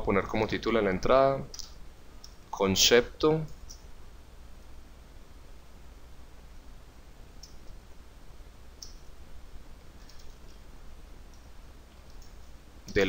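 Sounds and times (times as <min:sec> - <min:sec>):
low electrical hum: 0:00.0 - 0:13.0
computer keyboard keystrokes: 0:10.0 - 0:10.6.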